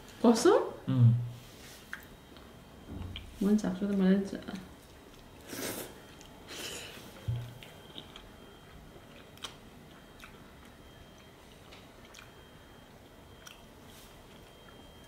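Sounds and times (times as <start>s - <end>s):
person chewing: 1.8s - 2.5s, 4.8s - 15.0s.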